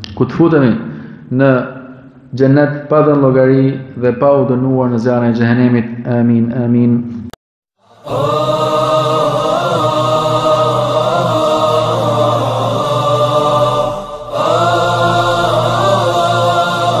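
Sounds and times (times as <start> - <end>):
low drone: 7.8 - 17.0
voice chanting melodic phrases: 7.8 - 17.0.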